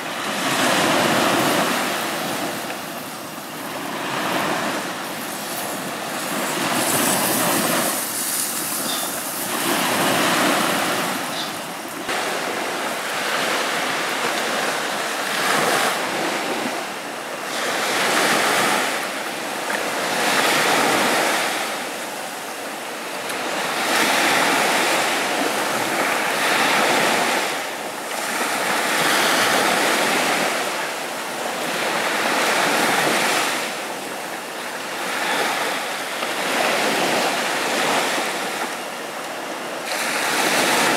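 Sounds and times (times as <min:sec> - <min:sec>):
sea waves breaking on beach: 0:00.0 - 0:40.9.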